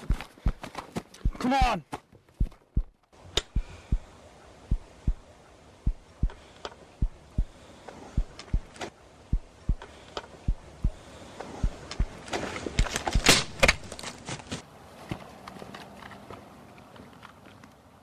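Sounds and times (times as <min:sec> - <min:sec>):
heartbeat thumps: 0:00.0 - 0:01.8, 0:02.4 - 0:12.2
faint steady hiss: 0:01.2 - 0:13.9.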